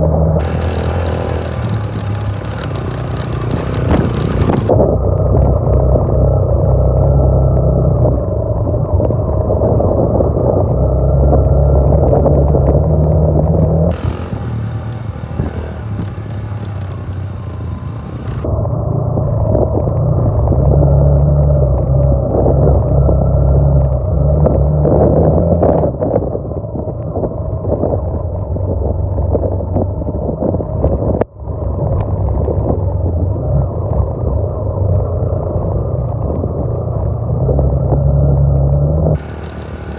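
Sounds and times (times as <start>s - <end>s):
motorcycle engine running: 0.0s - 8.8s, 10.5s - 25.0s, 39.2s - 39.9s.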